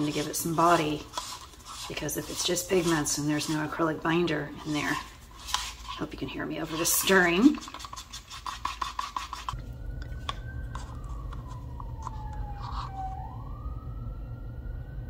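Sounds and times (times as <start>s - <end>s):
stick scraping in paper cup: 0.0s - 13.2s
faint wailing tone: 9.6s - 15.0s.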